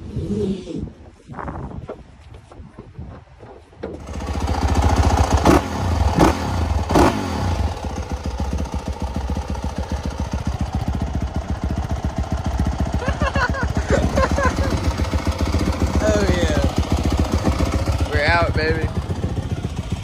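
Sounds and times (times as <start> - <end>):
dirt bike engine revving: 4.0 - 20.0.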